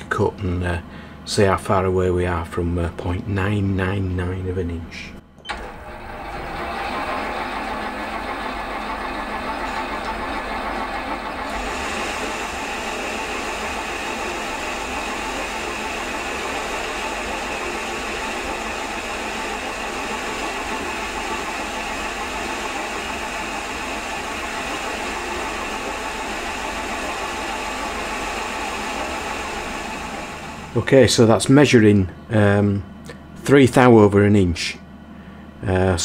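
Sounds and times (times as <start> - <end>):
metal lathe turning: 5.5 - 30.8.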